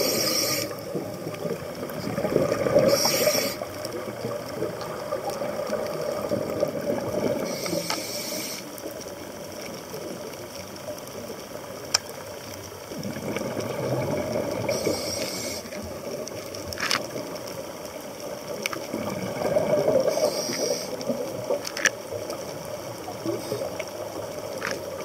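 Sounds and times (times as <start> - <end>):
regulator inhalation hiss: 0.0 - 1.0, 2.8 - 3.8, 7.4 - 8.8, 14.6 - 15.9, 20.0 - 21.1
bubbling exhaled air: 0.0 - 8.7, 12.9 - 17.2, 18.8 - 21.6.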